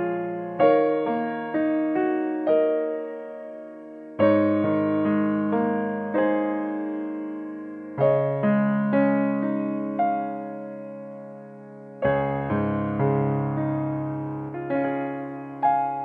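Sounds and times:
gentle piano music: 0.0s - 16.0s.

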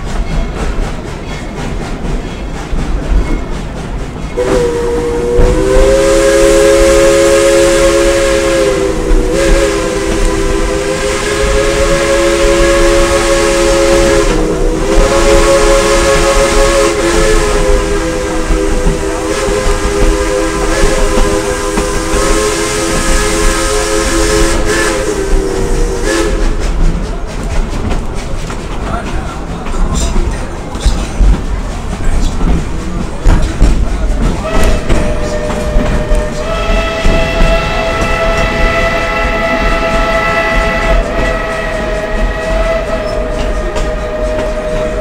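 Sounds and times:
moving train rumble: 0.0s - 45.0s
steam locomotive chime whistle: 4.3s - 26.6s, 34.4s - 45.0s.

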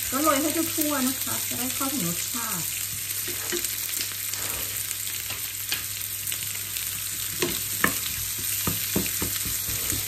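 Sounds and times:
onions sizzling in oil: 0.0s - 10.0s
wooden spoon knocking pan: 7.4s - 10.0s.

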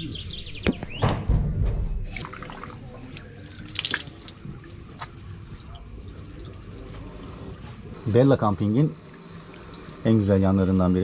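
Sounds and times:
water splashing on a face: 2.1s - 7.9s
water running from a tap: 2.1s - 11.0s.

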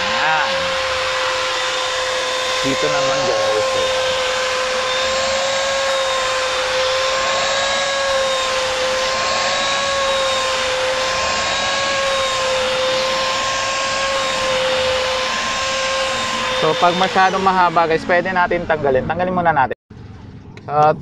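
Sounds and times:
vacuum cleaner running: 0.0s - 18.8s.

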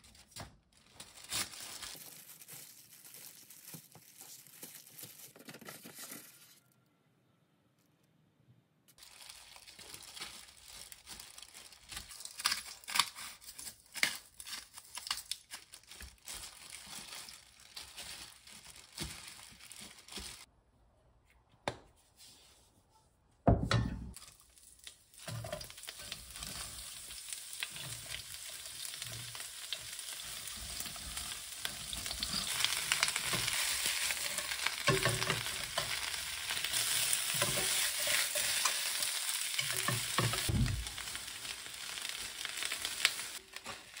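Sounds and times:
plastic glove crinkling: 0.0s - 6.6s, 8.9s - 20.5s, 24.1s - 44.0s
cabbage sizzling in a wok: 24.2s - 44.0s
stirring in a wok: 25.2s - 41.1s
loud thump: 40.5s - 41.0s.

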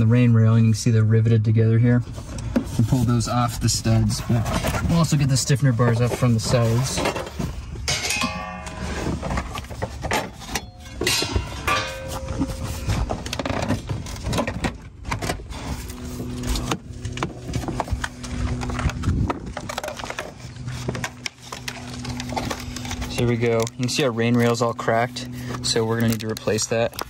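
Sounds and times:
low steady hum: 0.0s - 27.0s
metal bar knocking and rattling: 7.9s - 9.4s, 10.1s - 12.8s.

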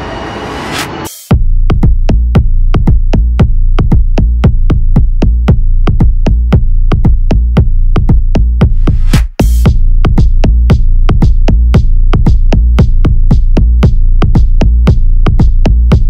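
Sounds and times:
electronic dance music: 2.3s - 16.0s.

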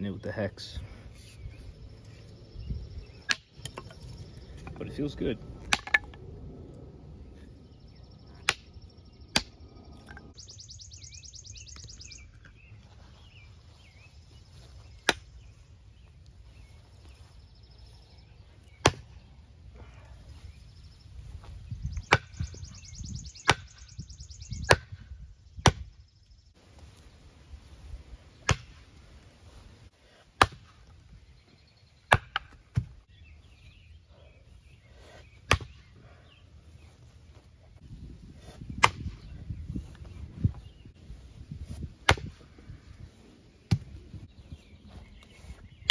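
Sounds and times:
tomahawk chopping wooden log: 5.6s - 6.1s, 9.3s - 9.5s, 18.8s - 19.1s, 23.4s - 23.7s, 25.6s - 25.9s, 28.4s - 28.8s, 30.4s - 30.8s, 32.1s - 32.9s, 35.5s - 35.8s, 38.8s - 39.2s, 42.0s - 42.4s.

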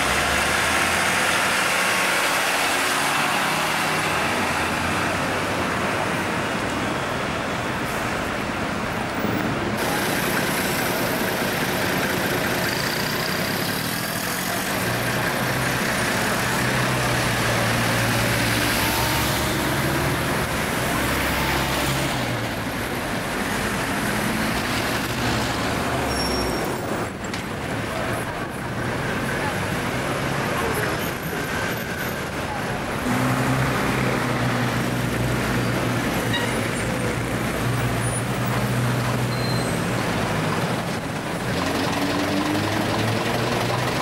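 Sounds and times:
bus diesel engine running: 0.0s - 44.0s
busy street traffic: 0.0s - 44.0s.

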